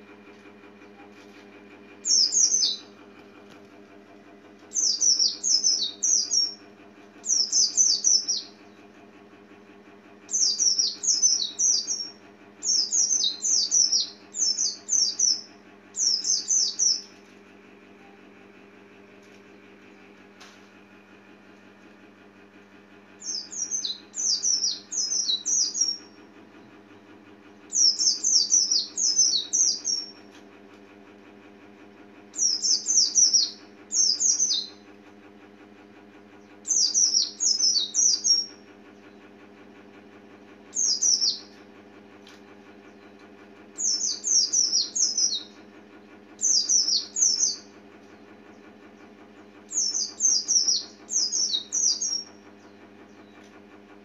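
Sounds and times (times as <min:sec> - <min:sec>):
steady low hum: 0:00.0 - 0:54.0
bird chirping: 0:02.0 - 0:02.9, 0:04.7 - 0:06.6, 0:07.3 - 0:08.6, 0:10.3 - 0:17.1, 0:23.2 - 0:26.1, 0:27.7 - 0:30.2, 0:32.4 - 0:34.7, 0:36.6 - 0:38.5, 0:40.8 - 0:41.6, 0:43.8 - 0:45.6, 0:46.4 - 0:47.7, 0:49.7 - 0:52.3.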